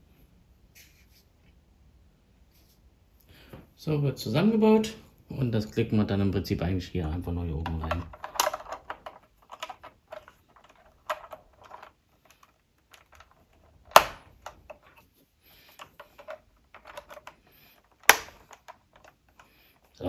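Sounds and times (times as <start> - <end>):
plastic bricks clicking and rattling: 7.0 - 15.0, 15.7 - 20.0
sharp plastic snaps: 7.6 - 15.0, 15.7 - 20.0.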